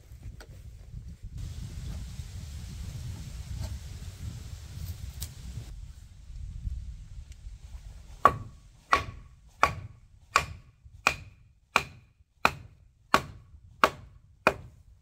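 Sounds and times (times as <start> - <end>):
wooden mallet knocking log: 8.2 - 14.8.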